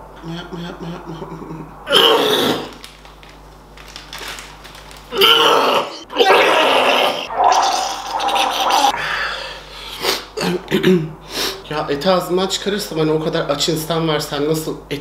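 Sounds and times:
man gagging and retching: 0.2 - 2.7, 5.2 - 9.0.

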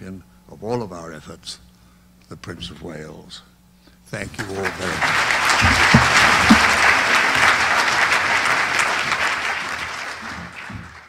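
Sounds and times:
audience applauding: 4.4 - 11.0.

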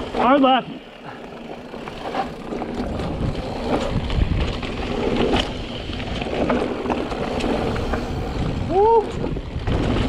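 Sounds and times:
tyre and wind noise: 1.2 - 10.0
bike clicks and knocks: 1.3 - 8.5.

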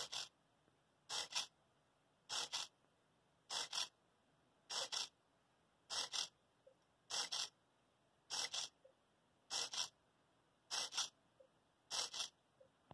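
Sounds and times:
micro servo whirring: 1.1 - 1.5, 2.3 - 2.7, 3.5 - 3.9, 4.7 - 5.1, 5.9 - 6.3, 7.1 - 7.5, 8.3 - 8.7, 9.5 - 9.9, 10.7 - 11.1, 11.9 - 12.4.

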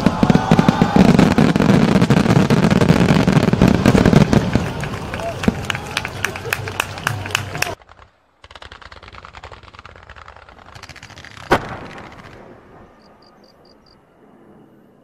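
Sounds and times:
fireworks popping: 0.0 - 13.1
fireworks rumble: 0.0 - 14.6
loud firework bang: 11.0 - 13.0.

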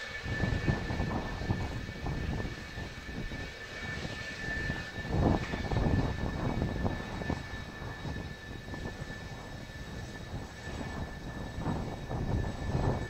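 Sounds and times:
jet engines whining: 0.0 - 13.0.

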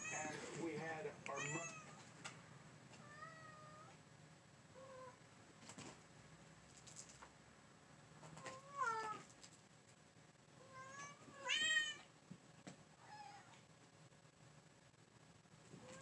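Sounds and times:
cat meowing: 1.3 - 2.0, 3.0 - 4.0, 8.4 - 9.3, 10.6 - 12.1, 13.0 - 13.6.

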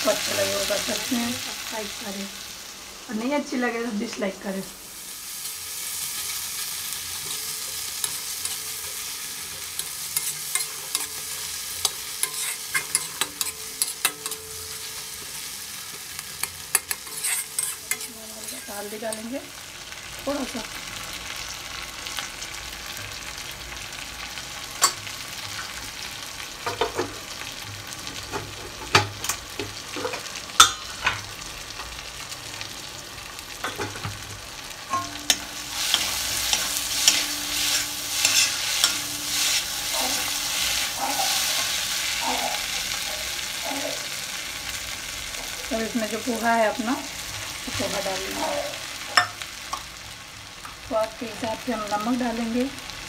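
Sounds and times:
vegetables sizzling in oil: 0.0 - 53.0
metal spatula clinking on pan: 7.2 - 19.3, 34.9 - 39.4.

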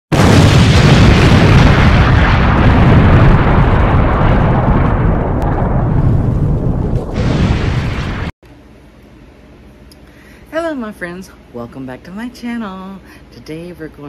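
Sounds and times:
fiery explosion blast: 0.1 - 8.4.

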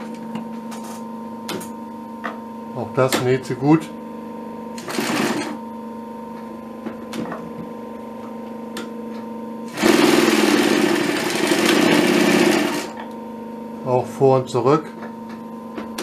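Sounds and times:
sewing machine motor hum: 4.8 - 5.6, 9.6 - 13.2
sewing machine stitching leather: 4.8 - 5.6, 9.7 - 13.0.

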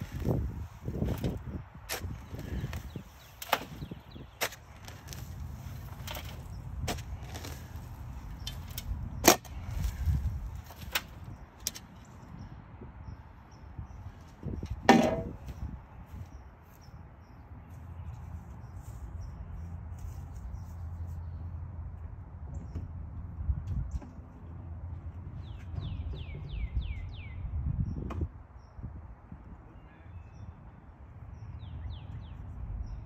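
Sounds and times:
sharp knocks of thrown sod: 1.0 - 11.8.

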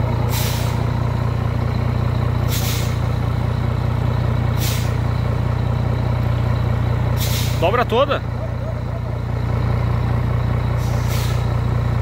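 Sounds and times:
truck diesel engine droning: 0.0 - 12.0
sharp air hisses: 2.5 - 3.0, 4.6 - 5.0, 7.2 - 7.6, 10.8 - 11.5.

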